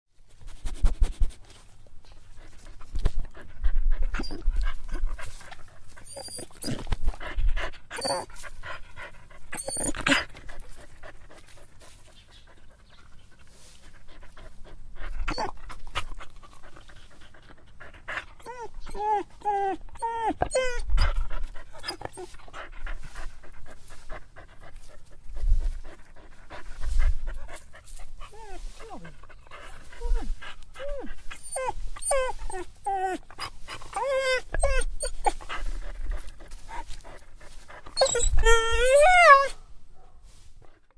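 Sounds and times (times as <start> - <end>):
dog panting: 2.1 - 39.4
dog whimpering: 4.2 - 4.5, 6.1 - 6.9, 7.9 - 8.3, 9.5 - 10.3, 15.3 - 15.6, 18.4 - 21.2, 28.3 - 29.2, 30.0 - 35.4, 37.9 - 39.6.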